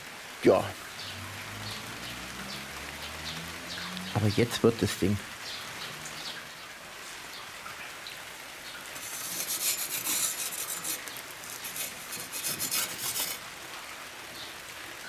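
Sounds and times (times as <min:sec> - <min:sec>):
metal spatula scraping pizza stone: 0:09.0 - 0:13.4.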